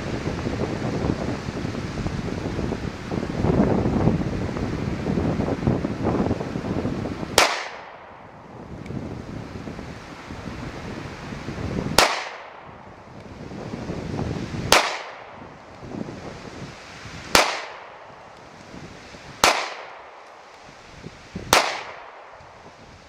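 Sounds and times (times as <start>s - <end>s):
wind buffeting microphone: 0.0s - 23.0s
pistol shots: 7.4s - 8.2s, 12.0s - 12.7s, 14.7s - 15.4s, 17.3s - 18.1s, 19.4s - 20.4s, 21.5s - 22.4s.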